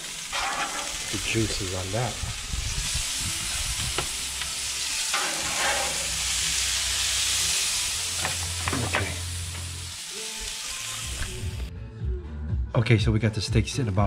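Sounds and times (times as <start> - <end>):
grill sizzling: 0.0 - 11.7
metal tongs clinking: 0.3 - 1.1, 5.1 - 6.3.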